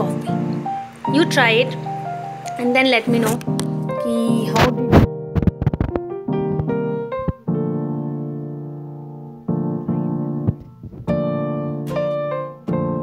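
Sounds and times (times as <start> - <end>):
slow piano chords: 0.0 - 13.0.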